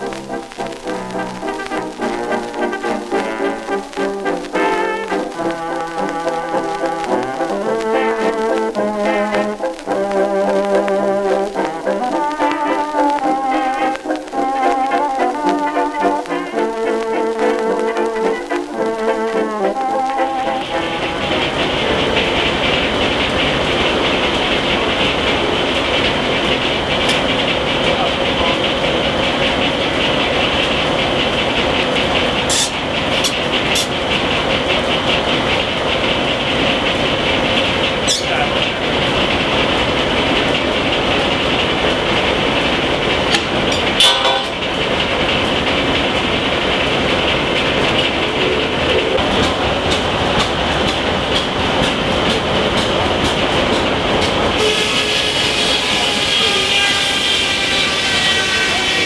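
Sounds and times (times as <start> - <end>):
circular saw machinery din: 19.0 - 59.0
sharp knocks: 43.3 - 44.8.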